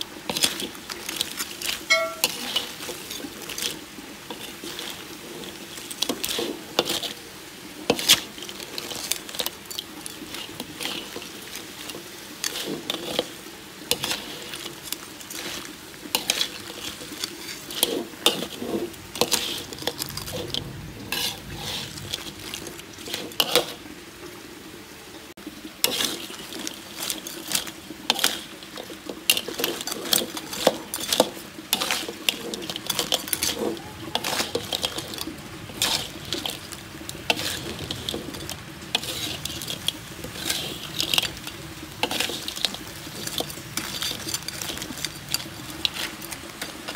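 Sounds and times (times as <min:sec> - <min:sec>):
light sizzle: 0:00.0 - 0:46.9
metal spatula scraping a wok: 0:00.1 - 0:23.9, 0:25.8 - 0:46.9
crab shells knocking together: 0:26.9 - 0:46.9.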